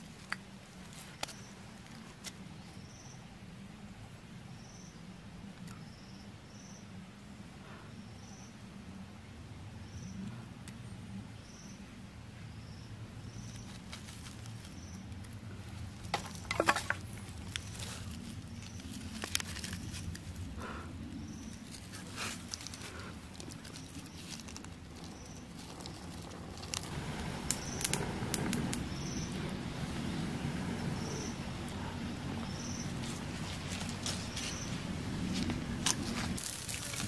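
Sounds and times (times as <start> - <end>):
dry leaves crackling and rustling: 13.4 - 20.6, 21.4 - 37.0
insect chirping: 25.0 - 35.1.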